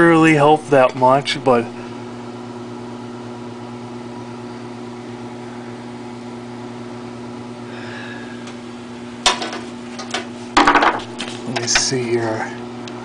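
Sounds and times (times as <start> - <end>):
air conditioner fan running: 0.0 - 13.0.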